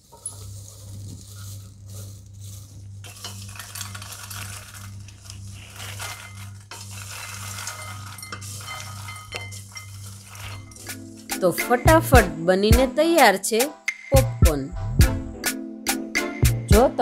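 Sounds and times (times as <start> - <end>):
popcorn stirred with spatula: 0.0 - 12.3
steady low hum: 0.0 - 12.4
popcorn rattling into glass bowl: 3.0 - 11.5.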